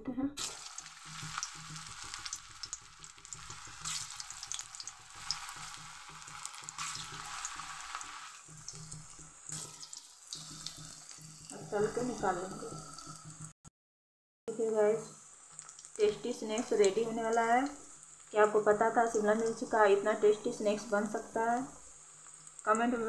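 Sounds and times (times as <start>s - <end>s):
oil crackling pops: 0.4s - 11.5s
deep-frying sizzle: 0.4s - 13.6s, 14.5s - 23.0s.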